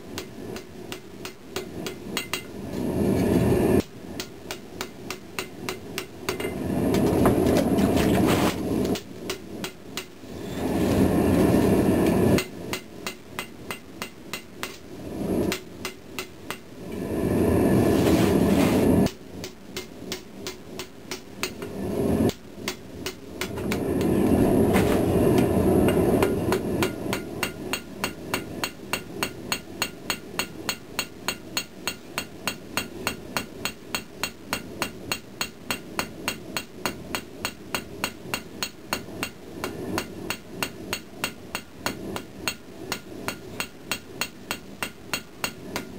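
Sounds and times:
hammer striking blade on anvil: 0.2s - 2.6s, 3.8s - 6.6s, 12.3s - 14.8s, 15.4s - 16.7s, 19.0s - 21.7s, 25.9s - 45.9s
loud rushing noise: 23.5s - 26.8s.

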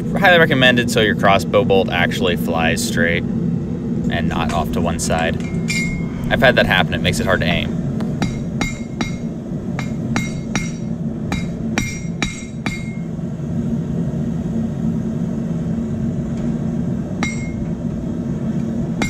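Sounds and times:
propane forge burner roaring: 0.0s - 19.0s
hammer striking hot steel on anvil: 4.4s - 6.0s, 8.0s - 13.1s, 17.2s - 17.7s.

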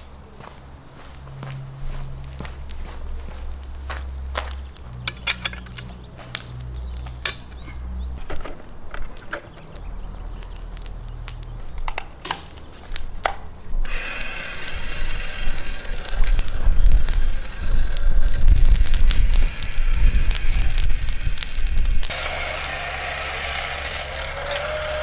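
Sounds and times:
sharp clicks: 3.6s - 22.8s
metal rod clinking and scraping: 5.0s - 6.0s
steady hissing with faint hum: 13.8s - 23.8s.

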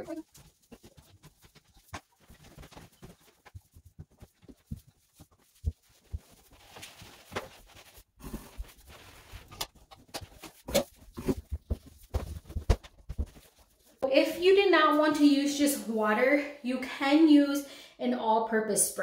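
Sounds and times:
wet cloth rubbing: 0.0s - 14.0s.

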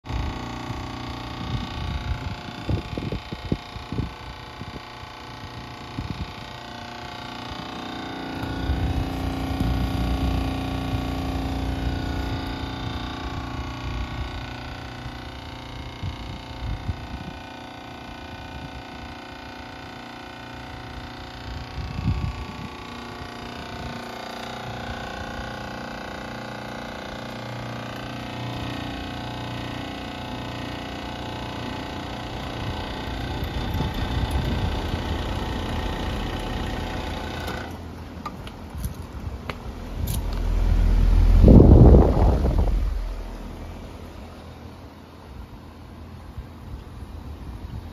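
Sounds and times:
heat pump compressor humming: 0.0s - 47.9s
wind rumble on microphone: 0.1s - 7.2s, 8.4s - 17.5s, 21.4s - 25.5s, 32.4s - 36.4s, 38.7s - 44.0s.

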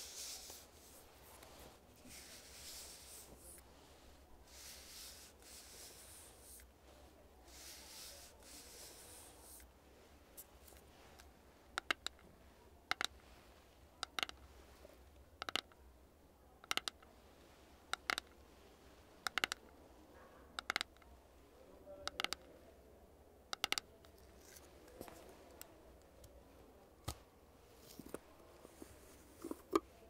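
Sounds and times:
fingernails tapping plastic jar: 11.8s - 12.2s, 12.9s - 13.2s, 14.0s - 14.4s, 15.4s - 15.7s, 16.6s - 17.0s, 17.9s - 18.3s, 19.3s - 19.6s, 20.6s - 21.0s, 22.1s - 22.5s, 23.5s - 23.8s.

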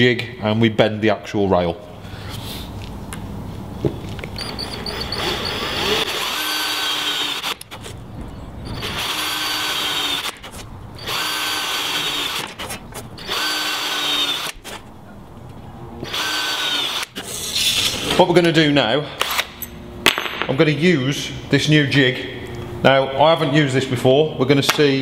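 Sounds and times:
cordless drill drilling metal: 4.4s - 7.9s, 8.7s - 14.8s, 16.0s - 17.3s.

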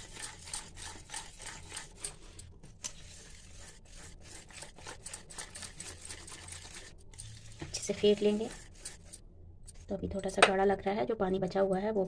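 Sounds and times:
wire whisk beating batter in bowl: 0.0s - 9.2s.

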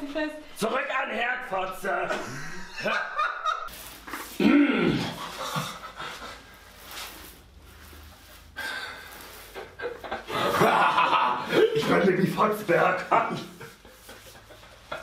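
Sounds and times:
person crying out: 4.4s - 5.2s
person panting: 8.6s - 9.5s.

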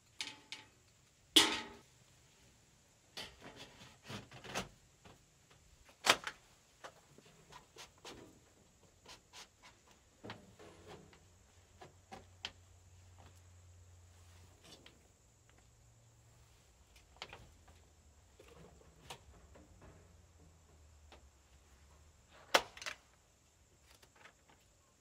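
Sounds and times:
knocks and clicks of building work: 16.9s - 23.2s.

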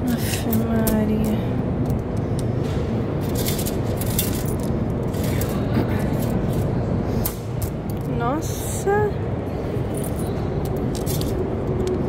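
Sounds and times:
coins clinking into machine: 3.2s - 6.6s, 9.9s - 11.5s.

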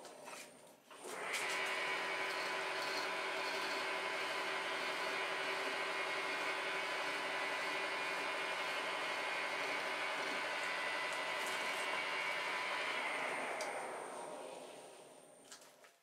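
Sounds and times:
lathe spindle running: 1.0s - 15.4s
hand file on spinning metal part: 2.3s - 6.3s.

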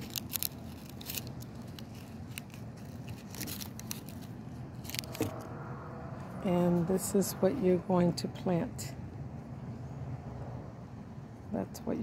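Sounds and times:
seed husk crackling and snapping: 0.0s - 5.3s.

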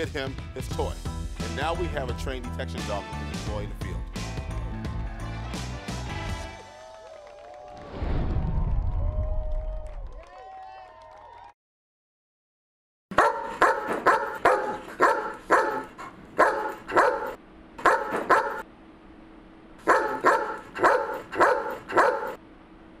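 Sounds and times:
large dog barking: 13.1s - 18.6s, 19.8s - 22.4s.

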